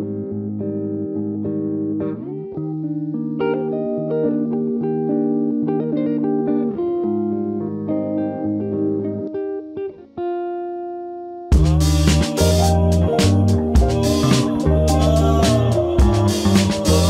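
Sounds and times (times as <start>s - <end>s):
plucked melody over held notes: 11.5s - 17.0s.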